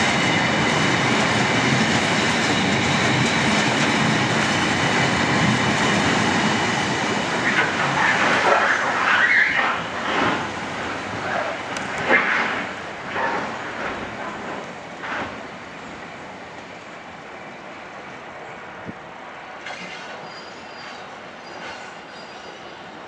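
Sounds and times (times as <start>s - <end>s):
faint high wheel squeal: 19.7s - 23.0s.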